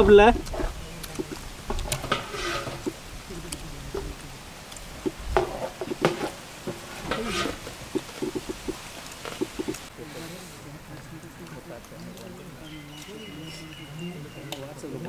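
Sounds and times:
food and plates crackling: 0.0 - 15.0
low voices: 0.0 - 15.0
sharp knocks: 5.0 - 9.9.

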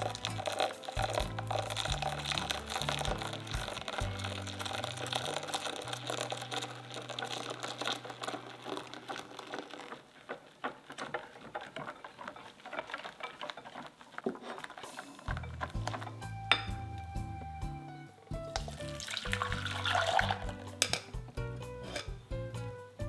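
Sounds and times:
whisk beating liquid in glass bowl: 0.0 - 16.1, 19.0 - 21.0.

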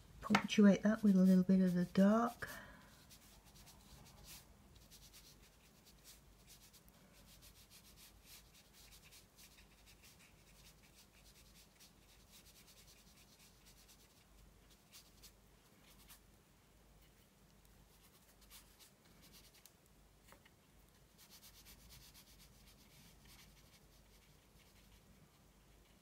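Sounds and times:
brush tapping on paper: 0.3 - 0.6.

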